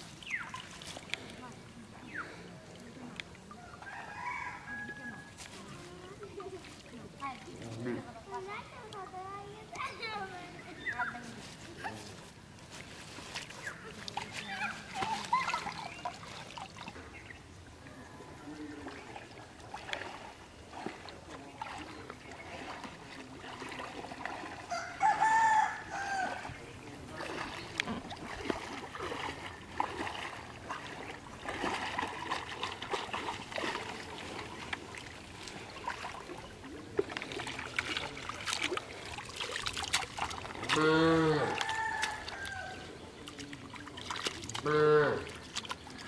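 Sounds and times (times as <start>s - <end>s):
shallow water splashing: 0.0s - 46.0s
rooster crowing: 3.7s - 5.3s, 24.7s - 26.5s, 41.3s - 42.9s.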